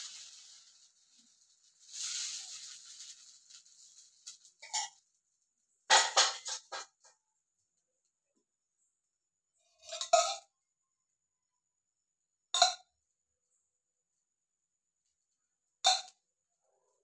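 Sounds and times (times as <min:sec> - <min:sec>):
ladle scraping batter hiss: 0:00.0 - 0:05.0
steel utensils knocking together: 0:05.9 - 0:07.1.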